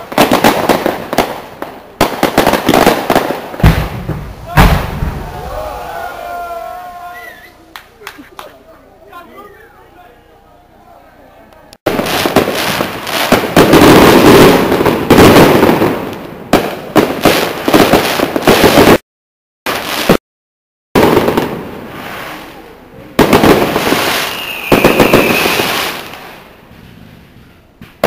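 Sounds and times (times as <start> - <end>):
firework bursts and crackling: 0.0 - 8.7, 11.8 - 19.0, 19.7 - 20.2, 21.0 - 28.0
firework whistle: 23.8 - 27.6.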